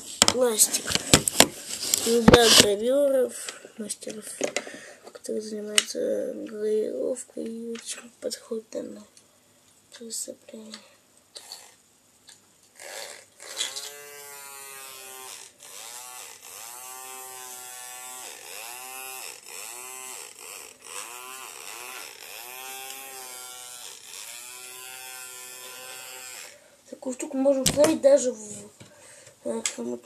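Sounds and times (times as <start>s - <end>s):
small electric motor whining: 12.8s - 26.6s.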